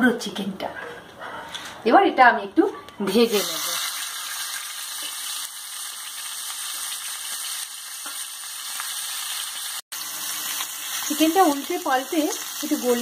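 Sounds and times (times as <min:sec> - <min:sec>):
chicken sizzling in hot oil: 0:03.1 - 0:13.0.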